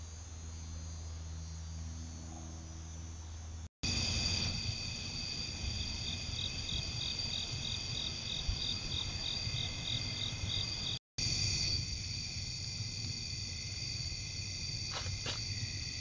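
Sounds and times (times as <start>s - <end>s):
crickets trilling: 0.0s - 16.0s
insect pulsing: 0.0s - 16.0s.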